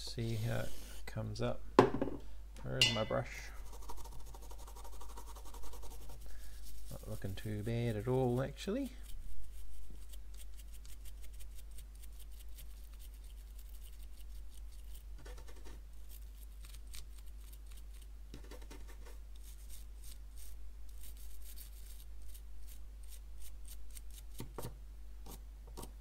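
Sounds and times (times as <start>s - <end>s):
brush scrubbing circuit board: 3.6s - 24.3s.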